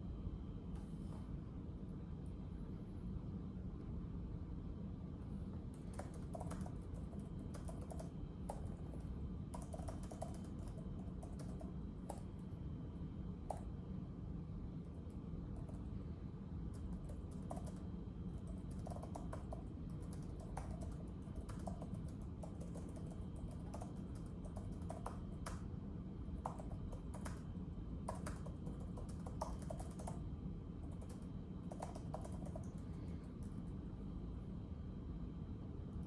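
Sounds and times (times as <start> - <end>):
low background rumble: 0.0 - 36.0
keyboard typing: 5.7 - 12.6, 14.8 - 16.0, 16.7 - 25.7, 26.3 - 33.8.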